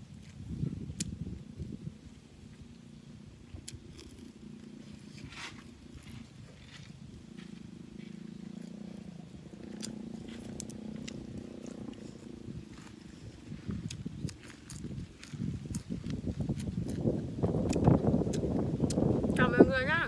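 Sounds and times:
low steady hum: 0:00.0 - 0:20.0
chewing and lip-smacking: 0:03.5 - 0:19.4
sharp crunches: 0:09.6 - 0:19.0.

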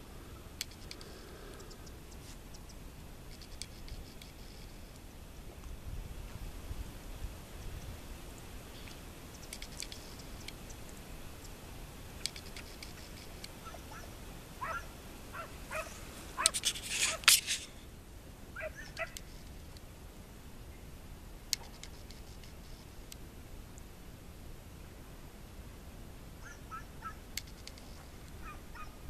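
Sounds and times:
faint outdoor background: 0:00.0 - 0:29.0
sharp clicks: 0:00.6 - 0:05.0, 0:09.3 - 0:11.0, 0:12.2 - 0:13.6, 0:21.5 - 0:23.2, 0:27.3 - 0:27.9
short animal calls: 0:13.6 - 0:17.8, 0:18.6 - 0:19.3, 0:26.4 - 0:27.2, 0:28.4 - 0:29.0.

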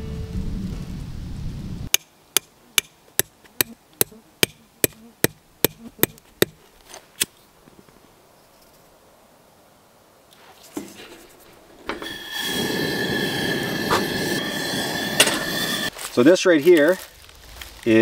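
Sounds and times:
music: 0:00.0 - 0:00.6
hatchet hammering a tent stake: 0:01.9 - 0:06.6.

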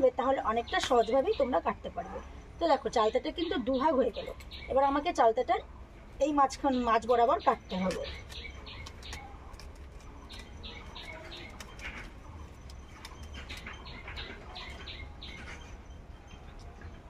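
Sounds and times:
blade crunching through fruit: 0:07.6 - 0:14.8.

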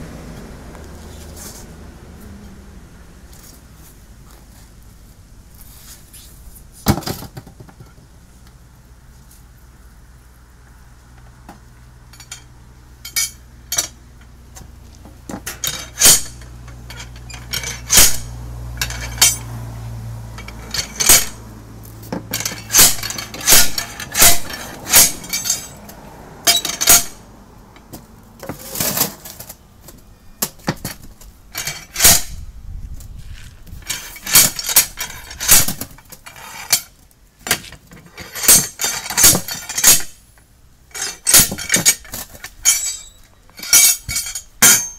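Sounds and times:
tyre bar clanking on wheel rim: 0:13.1 - 0:19.5, 0:20.4 - 0:21.4, 0:22.0 - 0:27.2, 0:27.8 - 0:32.4, 0:33.8 - 0:40.2, 0:40.9 - 0:44.9.

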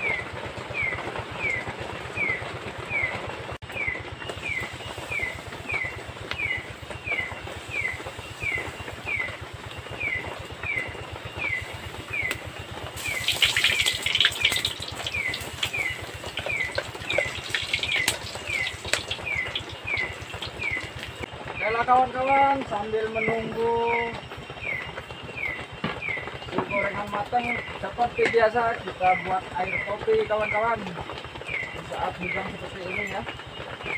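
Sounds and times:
batter frying in hot oil: 0:04.2 - 0:22.6, 0:26.3 - 0:33.9.

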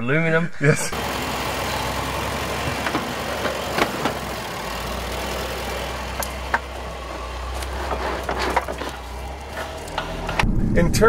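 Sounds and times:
tyres crunching over dirt and twigs: 0:00.9 - 0:10.4
low engine hum: 0:00.9 - 0:10.7.

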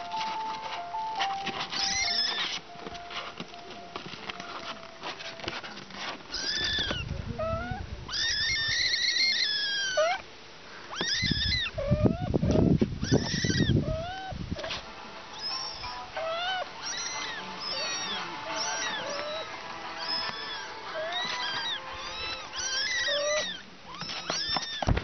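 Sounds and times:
kittens meowing: 0:01.6 - 0:02.6, 0:06.3 - 0:25.0.

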